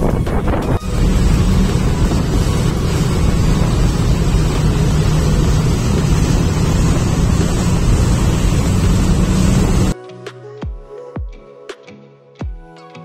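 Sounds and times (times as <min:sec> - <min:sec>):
churning boat wake: 0:00.0 - 0:10.0
wind buffeting microphone: 0:00.0 - 0:10.0
boat engines running: 0:00.8 - 0:10.0.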